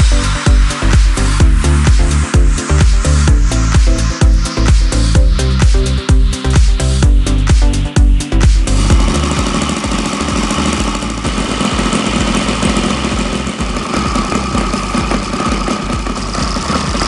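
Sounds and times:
model engine running: 8.6 - 17.0.

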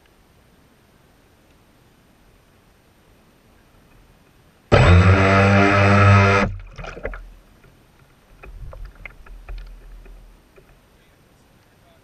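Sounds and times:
water splashing and dripping: 5.8 - 7.4.

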